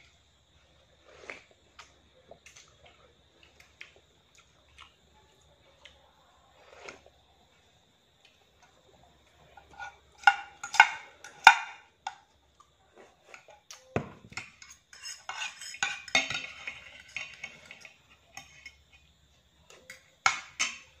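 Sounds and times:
cutlery scraping plate: 9.6 - 11.8, 14.3 - 19.1
cutlery clinking on plate: 13.9 - 19.0.

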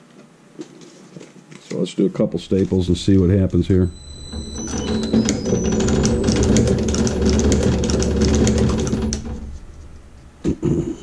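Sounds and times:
stapling machine motor hum: 2.4 - 10.5
rapid regular clicking: 4.3 - 9.8.

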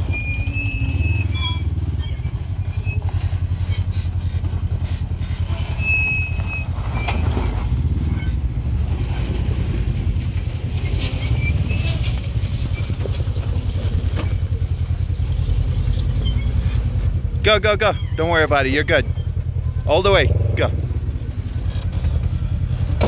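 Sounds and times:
off-road vehicle engines rumbling: 0.0 - 23.0.

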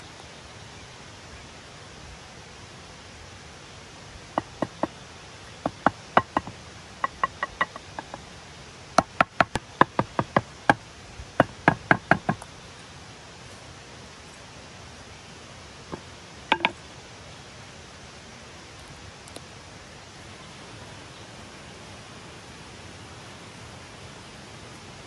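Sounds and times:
hatchet knocking on wooden poles: 4.4 - 5.0, 5.6 - 8.2, 9.0 - 10.8, 11.4 - 12.5, 15.9 - 16.8.

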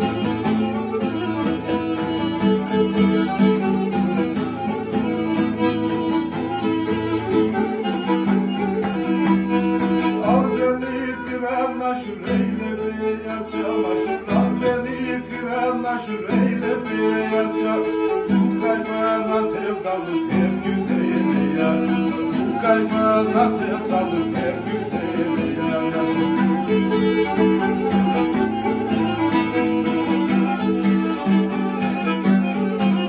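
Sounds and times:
bowed string instrument: 0.0 - 33.0
strummed acoustic guitar: 0.0 - 33.0
man singing: 9.8 - 33.0.

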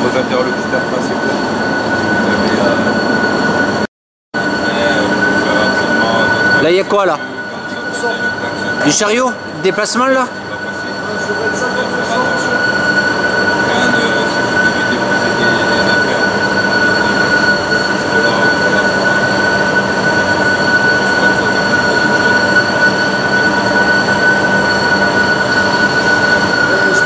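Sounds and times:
lathe high whine: 0.0 - 27.0.

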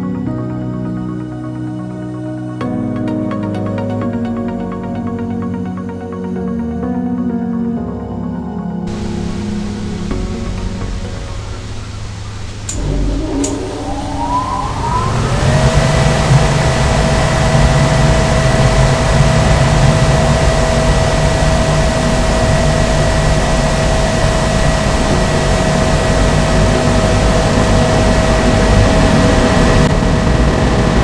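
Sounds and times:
fan motor whining: 8.9 - 31.0
low rumble: 8.9 - 31.0.

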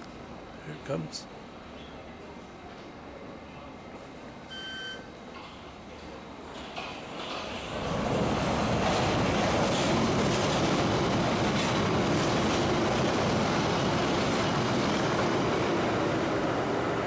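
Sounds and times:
train wheels rumbling on rails: 5.3 - 17.0.

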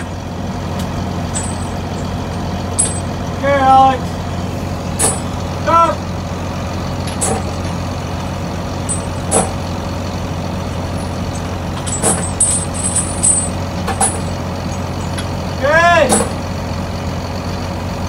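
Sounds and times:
low machine hum: 0.0 - 18.0
steel chains clinking: 1.0 - 3.3, 7.0 - 7.8, 8.7 - 9.8, 10.5 - 15.3.

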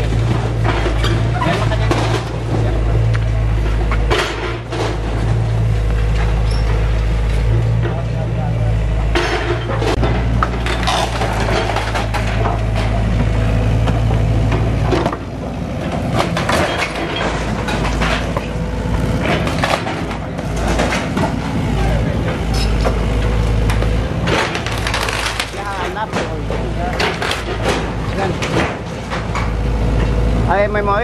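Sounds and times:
excavator diesel engine running: 0.0 - 31.0
wooden beams cracking: 23.6 - 29.5.

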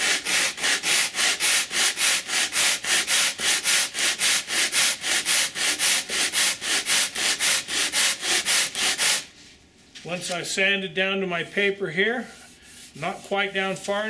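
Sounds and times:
foam rubbed on sandpaper: 0.0 - 9.3.

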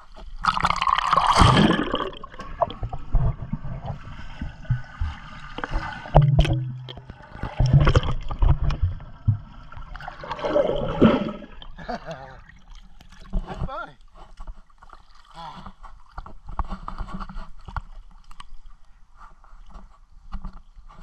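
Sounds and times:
muffled underwater bubbling: 0.4 - 12.6
water rushing: 0.5 - 11.8.

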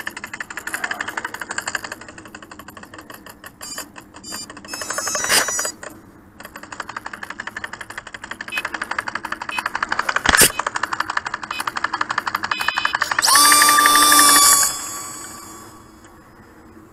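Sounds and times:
rapid even ticking of actuator: 0.0 - 16.1
rush of noise: 13.3 - 16.9.

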